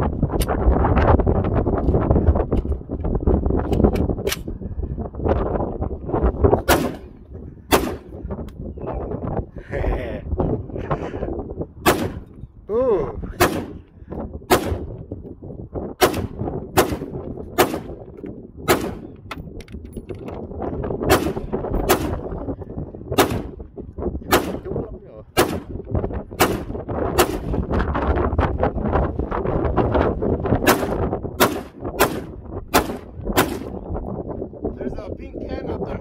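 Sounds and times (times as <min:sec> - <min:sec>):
rifle shots: 0:06.6 - 0:07.1, 0:07.7 - 0:08.2, 0:11.8 - 0:12.3, 0:13.4 - 0:13.8, 0:14.5 - 0:15.0, 0:16.0 - 0:18.0, 0:18.7 - 0:19.1, 0:21.1 - 0:22.3, 0:23.2 - 0:23.6, 0:24.3 - 0:24.7, 0:25.4 - 0:25.8, 0:26.4 - 0:27.6, 0:30.6 - 0:33.8.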